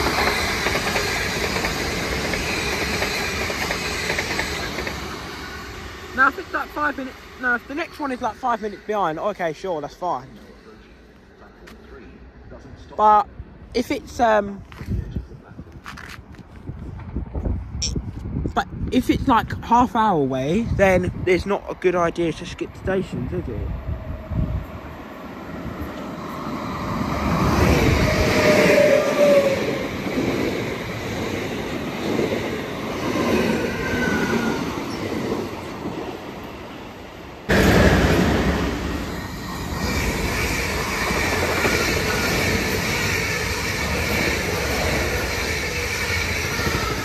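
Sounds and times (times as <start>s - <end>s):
train wheel squeals: 0.0s - 6.0s, 26.6s - 30.0s, 33.2s - 35.2s, 38.9s - 47.0s
train passing through station: 0.0s - 47.0s.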